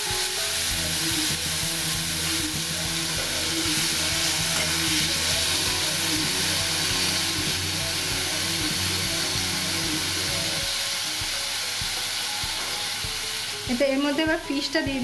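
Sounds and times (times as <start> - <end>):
fish sizzling in hot oil: 0.0 - 15.0
spatula stirring in pan: 0.5 - 9.5.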